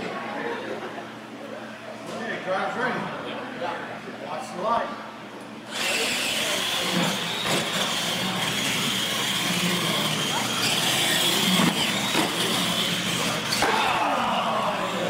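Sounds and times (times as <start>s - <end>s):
toy truck motors whining: 5.7s - 15.0s
tyres on concrete floor: 5.7s - 15.0s.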